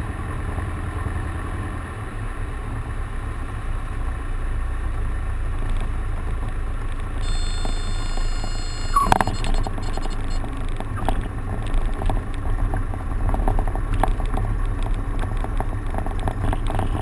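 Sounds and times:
high-pitched tone: 7.2s - 10.5s
airplane engine droning: 7.2s - 11.1s.

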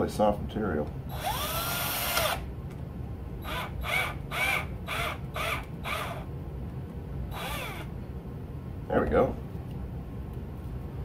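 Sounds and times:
hand drill whining: 1.1s - 2.5s, 3.4s - 6.3s, 7.3s - 7.9s.

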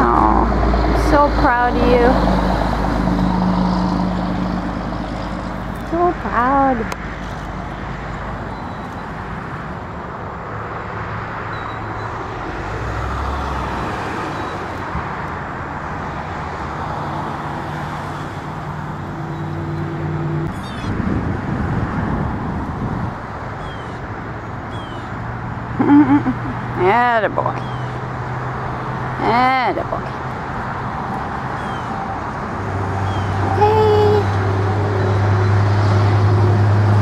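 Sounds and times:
low engine hum: 0.0s - 37.0s
road traffic rushing past: 0.0s - 37.0s.

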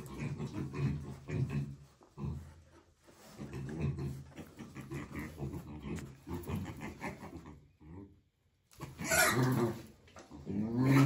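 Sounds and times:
animal grunting: 3.3s - 11.0s
animal growling: 8.8s - 11.0s.

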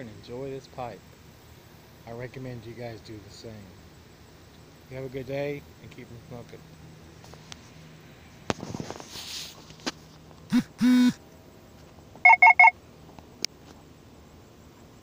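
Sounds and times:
handling rustle: 8.5s - 10.4s
low buzzing tone: 10.5s - 11.2s
quick high beeps: 10.5s - 11.2s, 12.2s - 12.7s.

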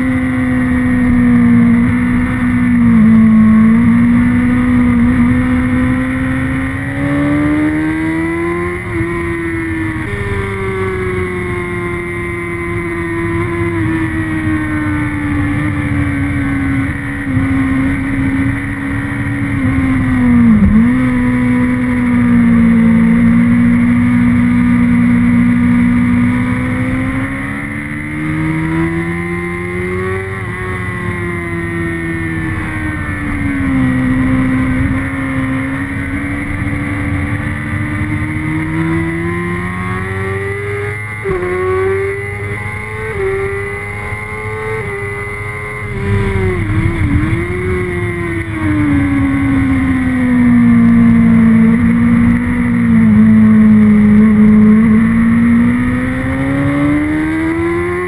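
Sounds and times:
motorcycle engine at high revs: 0.0s - 58.0s
wind rush: 45.9s - 49.4s.

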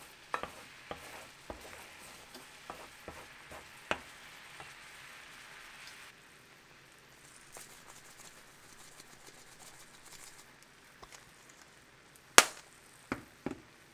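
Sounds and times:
utensil knocking and scraping: 0.0s - 4.8s
food sizzling in a pan: 0.0s - 10.5s.

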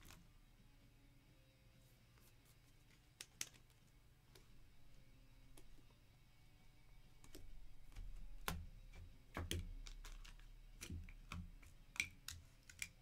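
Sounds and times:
small objects clicking on desk: 2.9s - 3.8s, 7.2s - 13.0s.

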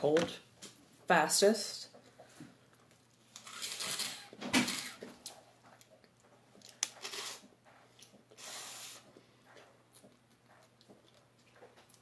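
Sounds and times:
sucking and slurping: 8.3s - 9.2s.

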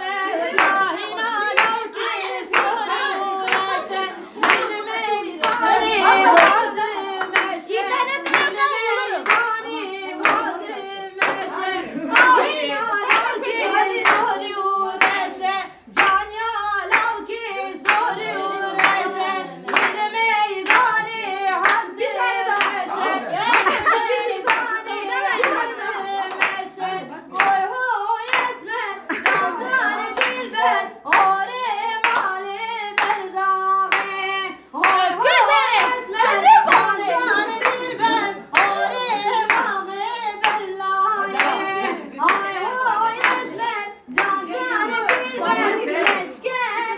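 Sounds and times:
people singing: 0.0s - 46.9s
hand claps: 0.4s - 0.9s, 1.5s - 14.4s, 15.0s - 15.3s, 15.9s - 17.2s, 17.8s - 18.2s, 18.8s - 19.1s, 19.7s - 21.9s, 23.5s - 24.8s, 25.4s - 26.7s, 27.3s - 27.6s, 28.2s - 30.4s, 31.1s - 31.4s, 32.0s - 34.2s, 34.8s - 37.9s, 38.5s - 39.8s, 40.4s - 46.9s
hands clapping in time: 4.4s - 6.6s, 8.2s - 8.6s, 11.2s - 11.6s, 27.3s - 27.6s.

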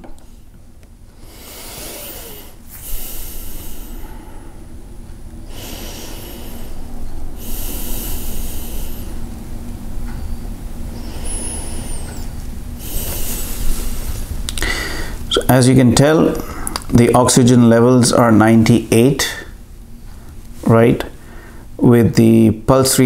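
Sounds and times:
person breathing slowly: 1.2s - 9.6s, 10.2s - 15.4s, 21.1s - 21.8s.

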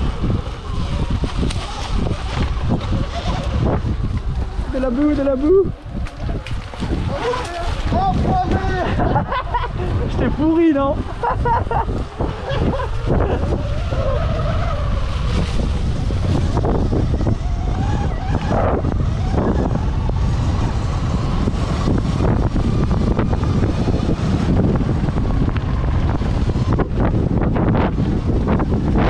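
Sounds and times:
wind buffeting microphone: 0.0s - 29.0s
electric motor whine: 12.0s - 29.0s.

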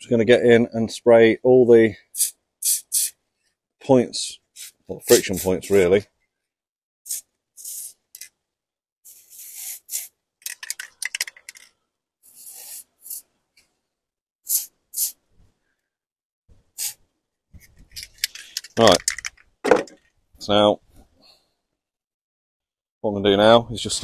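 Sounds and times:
aerosol can spraying: 2.2s - 3.1s, 4.6s - 5.8s, 7.1s - 8.3s, 9.1s - 10.6s, 12.3s - 13.2s, 14.5s - 15.2s, 16.8s - 17.0s.

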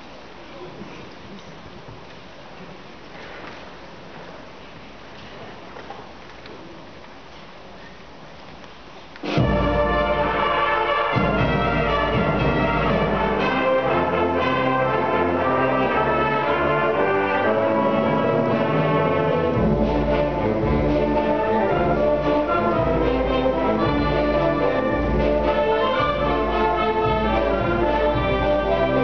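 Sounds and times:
accented band hits: 9.2s - 29.0s
concert band playing a march: 9.2s - 29.0s.

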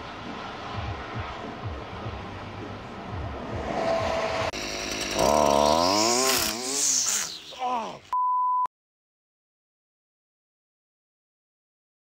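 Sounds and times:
string trimmer engine revving: 3.6s - 7.5s
censor bleep: 8.1s - 8.7s.

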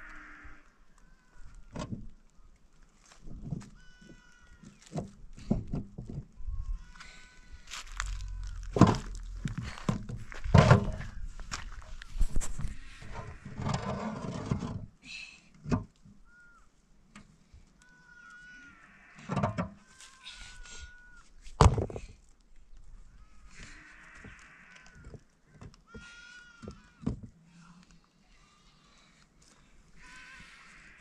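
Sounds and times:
stones knocking together: 7.7s - 12.7s.

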